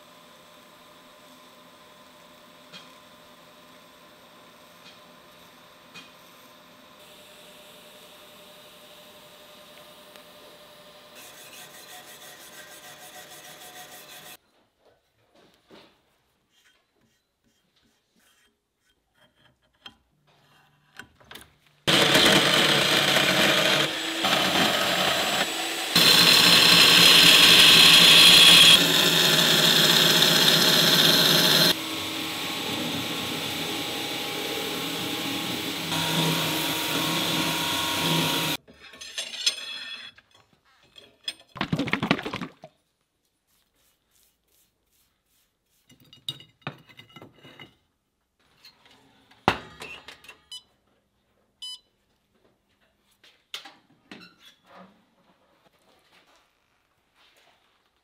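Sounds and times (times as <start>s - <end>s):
belt grinder grinding steel: 21.9s - 38.6s.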